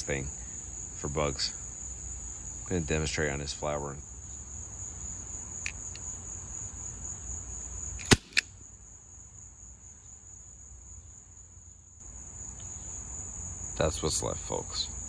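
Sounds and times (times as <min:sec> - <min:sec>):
insect trill: 0:00.0 - 0:15.0
salt gun shot: 0:08.0 - 0:08.5
small snap: 0:08.0 - 0:08.5.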